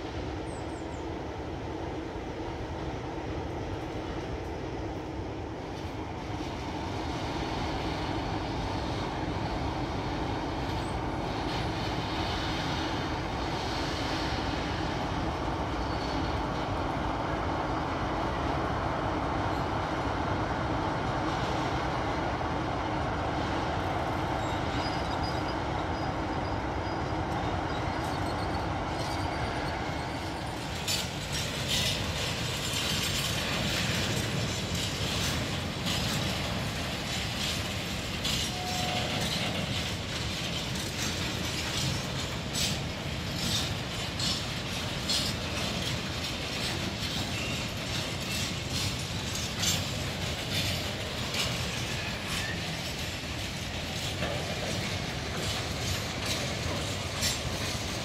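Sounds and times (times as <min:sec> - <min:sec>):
diesel locomotive engine: 0:00.0 - 0:58.0
wagons rolling on track: 0:27.7 - 0:58.0.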